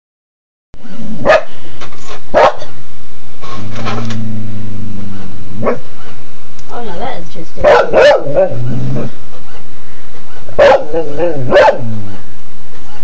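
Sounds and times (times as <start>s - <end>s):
steady low hum: 0.8s - 13.0s
dog barking: 1.2s - 1.5s, 2.3s - 2.8s, 5.6s - 5.9s, 7.6s - 8.6s, 10.6s - 12.0s.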